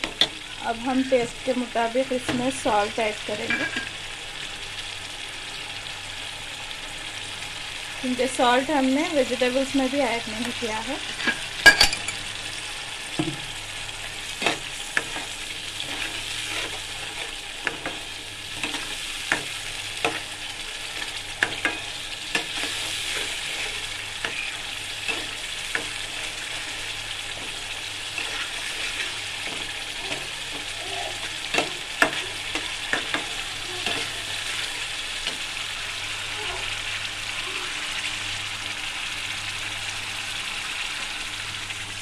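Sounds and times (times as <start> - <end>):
puree sizzling in a pan: 0.0 - 42.0
spatula scraping a metal pan: 14.4 - 18.0, 21.4 - 30.6.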